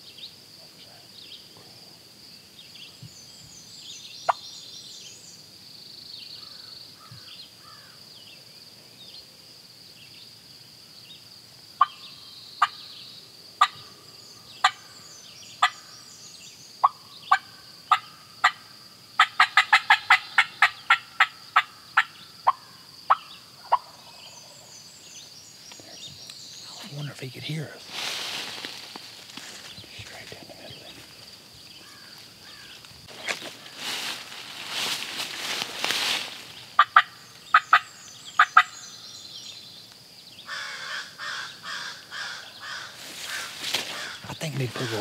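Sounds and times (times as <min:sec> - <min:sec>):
turkey call clucking: 0:19.2 - 0:24.0, 0:36.8 - 0:38.8
high insect buzz: 0:24.2 - 0:45.0.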